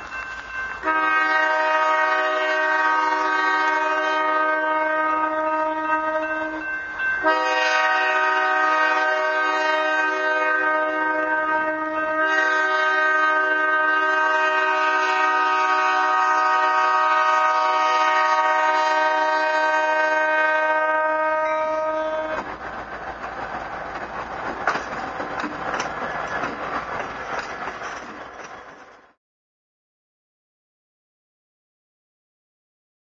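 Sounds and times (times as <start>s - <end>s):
wheels clicking on rails: 0.0s - 0.9s, 22.1s - 29.2s
train rumbling past: 0.0s - 29.2s
locomotive air horn blast: 0.8s - 22.5s.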